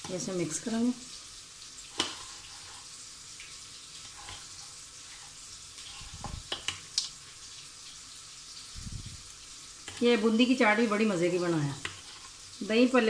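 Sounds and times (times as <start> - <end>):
steady hiss: 1.0 - 12.9
wooden spoon scraping bowl: 4.0 - 6.7, 11.8 - 12.4.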